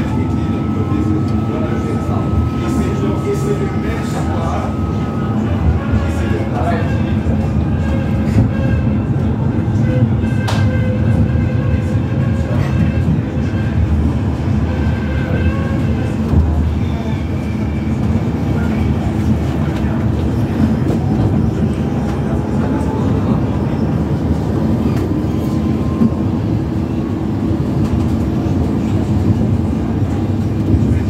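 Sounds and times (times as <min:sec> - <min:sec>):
steel wheels rumbling on rails: 0:00.0 - 0:31.0.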